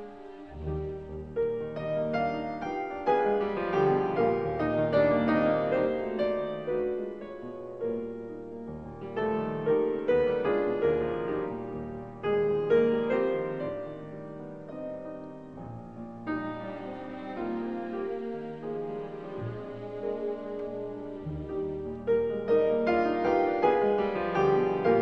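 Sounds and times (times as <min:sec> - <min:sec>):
piano music: 0:00.0 - 0:25.0.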